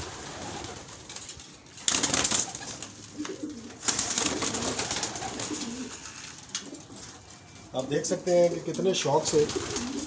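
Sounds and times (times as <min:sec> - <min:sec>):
wings flapping: 0:00.0 - 0:07.3, 0:09.2 - 0:10.0
pigeons cooing: 0:02.1 - 0:07.7, 0:09.0 - 0:10.0.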